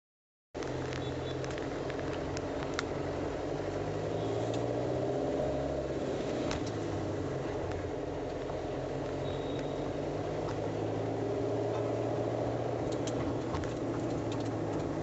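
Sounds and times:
car engine and road hum: 0:00.6 - 0:15.0.

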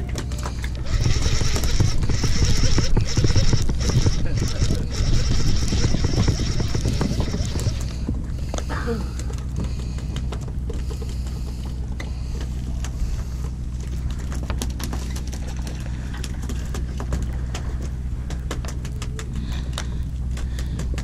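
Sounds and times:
sharp clicks and ticks: 0:00.0 - 0:07.9
boat engine drone: 0:00.0 - 0:21.0.

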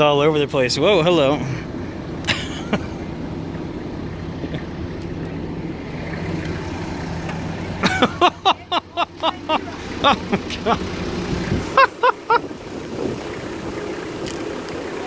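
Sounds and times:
voices: 0:00.0 - 0:03.0, 0:07.2 - 0:15.0
minibus engine idling: 0:00.0 - 0:15.0.

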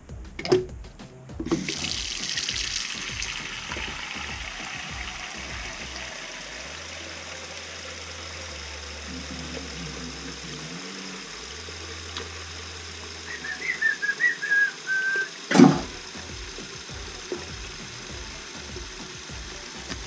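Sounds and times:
faucet running into sink: 0:01.5 - 0:20.0
person whistling: 0:13.3 - 0:15.4.

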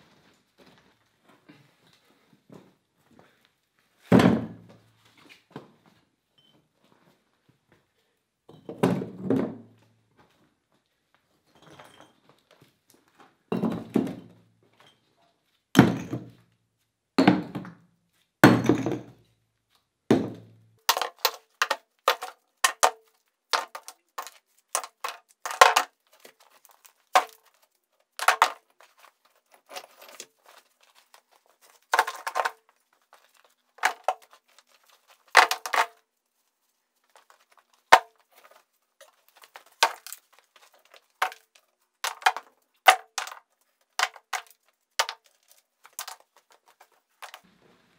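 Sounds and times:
rocks dropping into wheelbarrow: 0:28.2 - 0:36.0.

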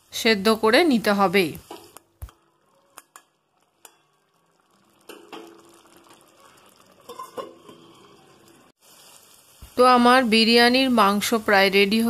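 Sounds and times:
curry sizzling in a pan: 0:00.0 - 0:12.0
cookware clinking against pan: 0:07.0 - 0:08.1.

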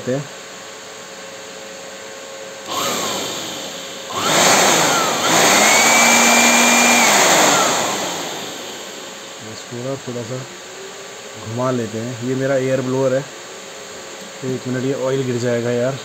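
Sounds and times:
cooling fan whine: 0:00.0 - 0:16.0
electric air blower blasting: 0:02.6 - 0:10.0.

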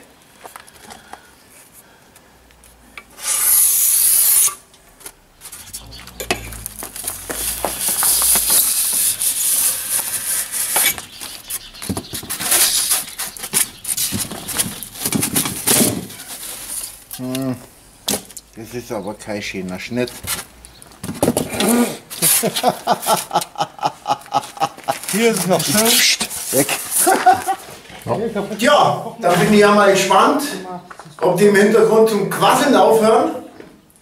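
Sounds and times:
loud hiss: 0:03.1 - 0:04.7, 0:05.6 - 0:11.0.

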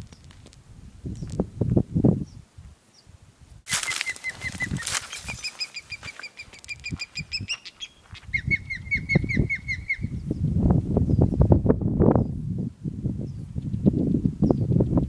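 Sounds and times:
bird calling in rapid notes: 0:03.7 - 0:10.2.

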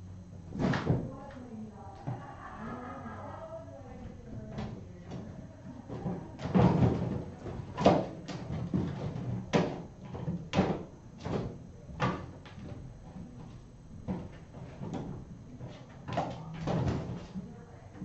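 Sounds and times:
irregular knocks and thumps: 0:04.0 - 0:18.0.

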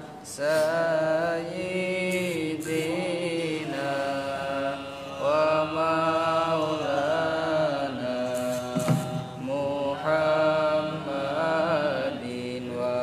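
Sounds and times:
person chanting held notes: 0:00.0 - 0:13.0
brief knock: 0:08.4 - 0:09.5.

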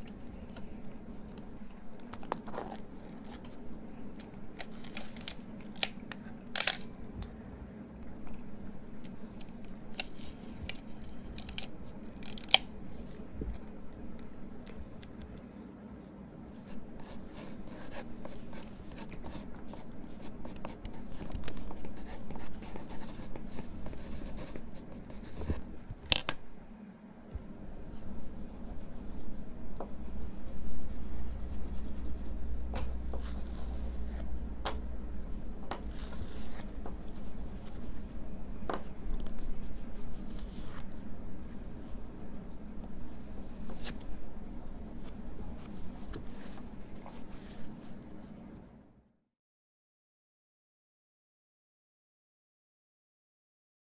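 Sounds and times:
pencil scribbling on paper: 0:16.5 - 0:25.9, 0:27.4 - 0:48.4.

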